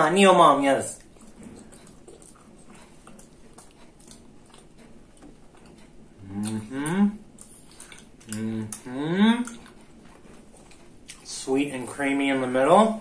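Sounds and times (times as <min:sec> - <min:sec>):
person chewing food: 0:00.8 - 0:12.0
person humming mmm: 0:06.2 - 0:07.3, 0:08.2 - 0:09.7.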